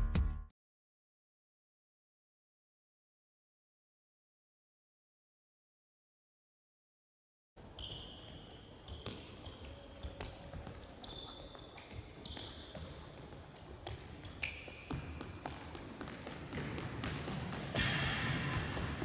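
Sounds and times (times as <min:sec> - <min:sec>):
shoes squeaking on court floor: 0:07.6 - 0:19.0.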